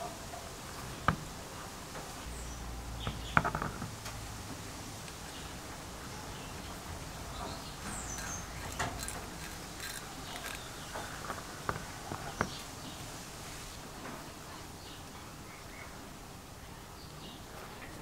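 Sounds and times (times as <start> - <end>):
metal clicks and taps: 7.8 - 10.7.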